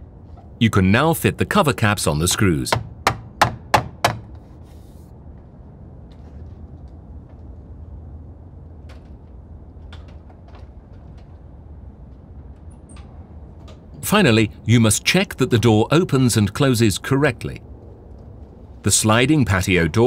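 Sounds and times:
low background noise: 0.0s - 20.0s
faint clicks and knocks: 8.8s - 14.0s.

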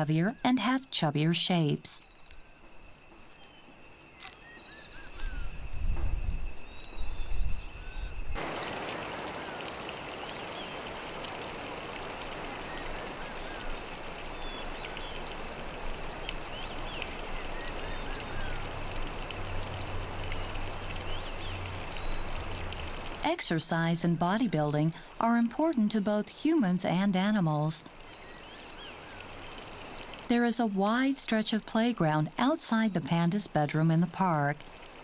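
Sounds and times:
running water rushing: 8.4s - 35.0s.

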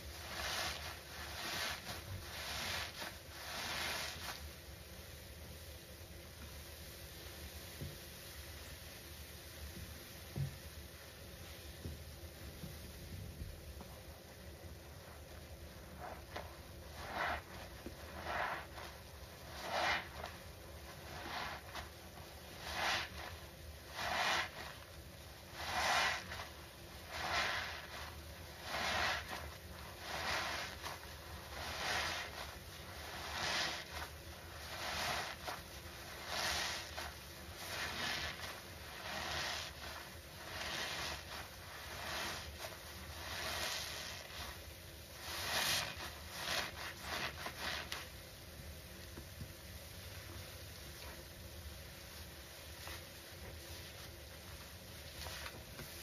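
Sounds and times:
sponge squelching: 0.0s - 4.6s, 14.1s - 48.2s, 52.6s - 56.0s.

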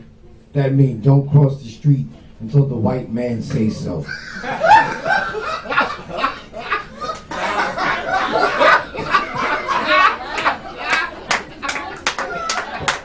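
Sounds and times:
audience laughing: 4.0s - 13.0s.

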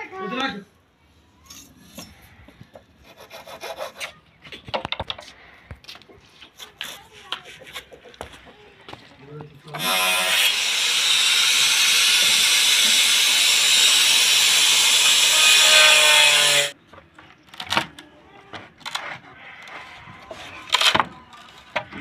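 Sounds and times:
angle grinder cutting bamboo: 9.8s - 16.8s.

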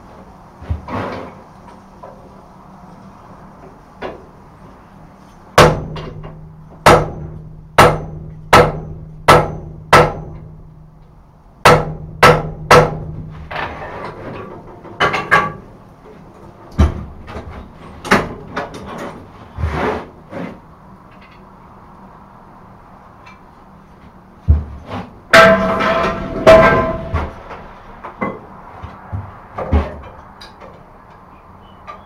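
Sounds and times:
hammer blows on anvil: 5.6s - 10.5s, 25.3s - 27.4s.

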